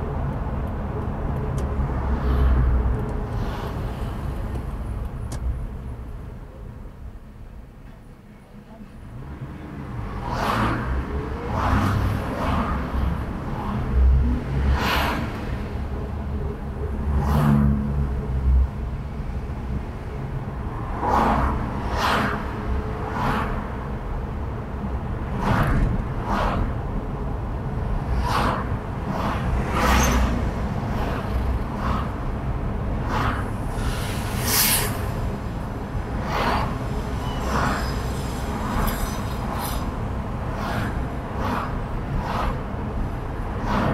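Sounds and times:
low rumble of engine and road: 0:00.0 - 0:43.9
vehicles whooshing past: 0:01.7 - 0:05.2, 0:09.1 - 0:43.9.

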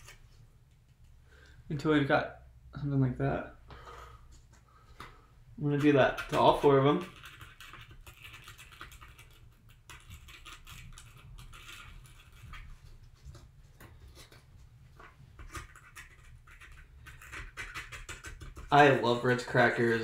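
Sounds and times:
toothpick scraping cracker: 0:05.9 - 0:12.6, 0:15.4 - 0:18.8.

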